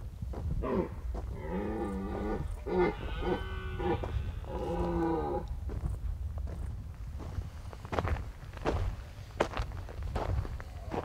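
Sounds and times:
deer stag roaring: 0.6s - 5.5s.

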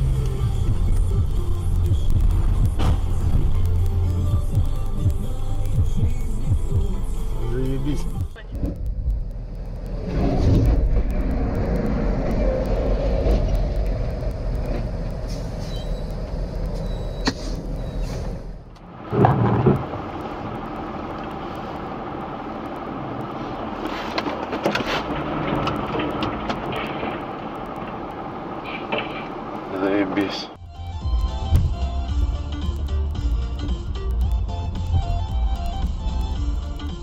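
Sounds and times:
car road and engine noise: 0.0s - 37.0s
truck rumble from inside cab: 0.0s - 37.0s
scattered clicks: 0.2s - 17.8s.

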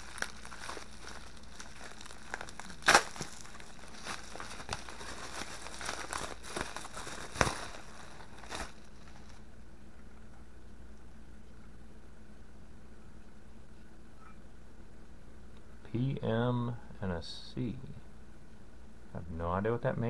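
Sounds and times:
bubble wrap crinkling and tearing: 0.0s - 9.4s
bubble wrap snaps: 0.0s - 9.4s.

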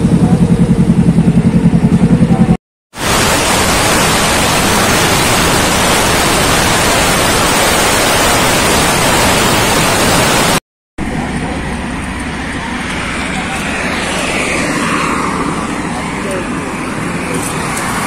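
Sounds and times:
wind roaring over microphone: 3.0s - 10.6s.

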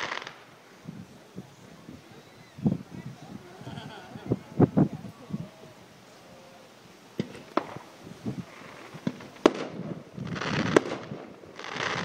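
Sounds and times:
fireworks bangs: 0.0s - 1.1s, 7.1s - 12.0s
fireworks crackling: 0.0s - 12.0s.

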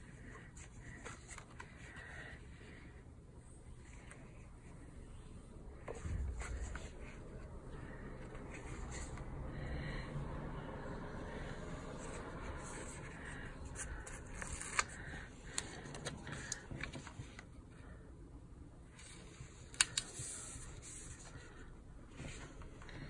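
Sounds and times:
paper rustling: 12.1s - 17.4s.

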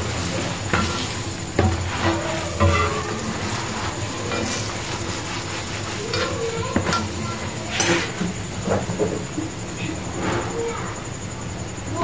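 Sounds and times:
tongs clicking on griddle: 0.0s - 8.4s
flatbread sizzling on griddle: 0.0s - 12.0s.

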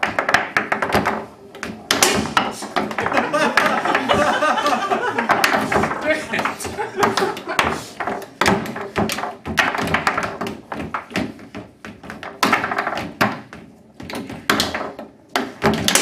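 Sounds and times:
foosball ball cracking: 0.0s - 16.0s
foosball rods banging: 0.0s - 16.0s.

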